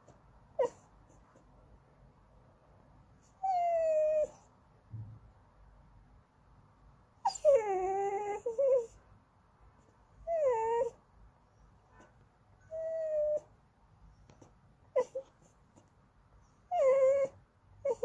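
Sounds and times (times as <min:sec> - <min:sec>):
puppy whining: 0:00.0 - 0:01.4, 0:03.2 - 0:04.5, 0:07.2 - 0:09.0, 0:10.2 - 0:11.0, 0:12.0 - 0:13.5, 0:14.2 - 0:18.0.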